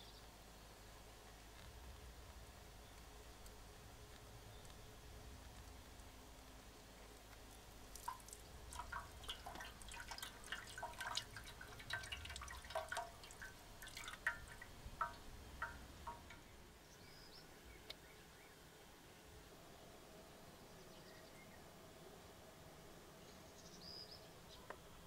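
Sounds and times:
liquid dripping and splashing: 7.9 - 16.5.

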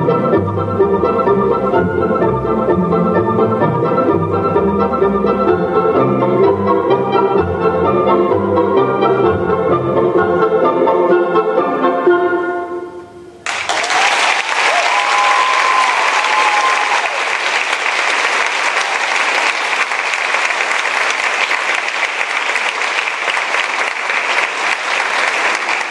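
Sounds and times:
audience applause: 13.4 - 25.9.

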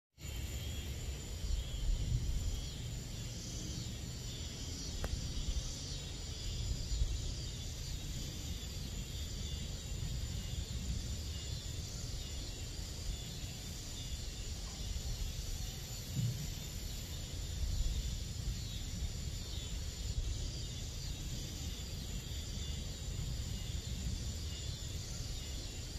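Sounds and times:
crickets trilling: 0.2 - 25.9.

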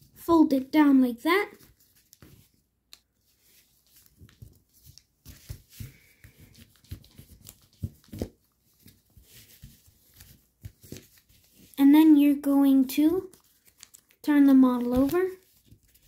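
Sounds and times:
paper rustling and crinkling: 1.4 - 11.9, 12.6 - 16.0.

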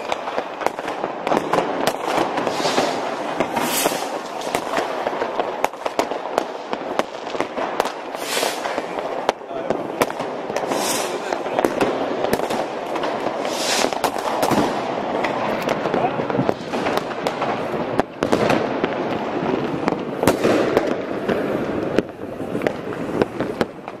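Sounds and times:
firecrackers crackling: 0.0 - 24.0
loud firework bangs: 0.0 - 24.0.

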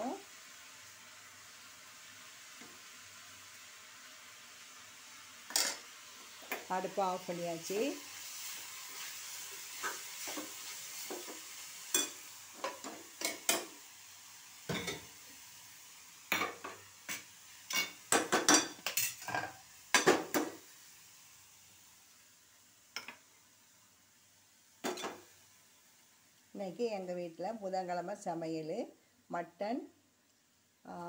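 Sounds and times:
soft sizzle from pan: 0.0 - 31.0
metal spoons clinking against pots: 14.7 - 15.0, 17.7 - 20.1.

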